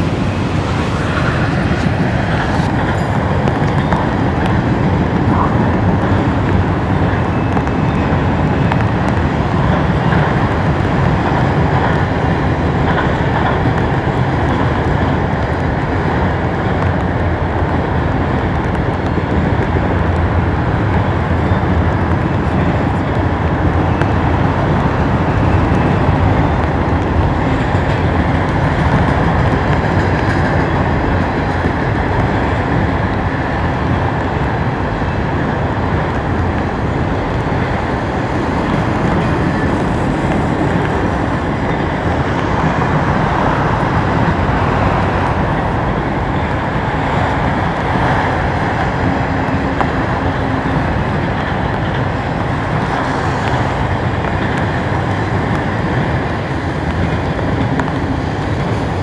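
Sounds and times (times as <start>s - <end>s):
freight train wheels on rails: 0.0s - 59.0s.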